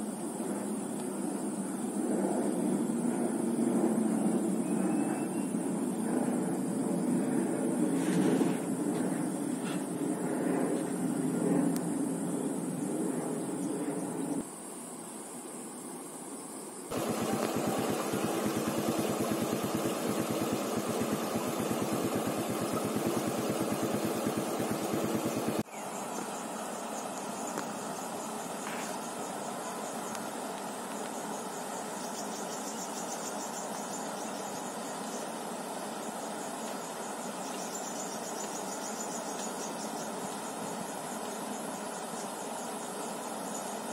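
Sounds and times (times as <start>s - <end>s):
faint insect chirping: 0.0s - 43.9s
engine idling: 16.9s - 25.6s
water rushing over a weir: 16.9s - 25.6s.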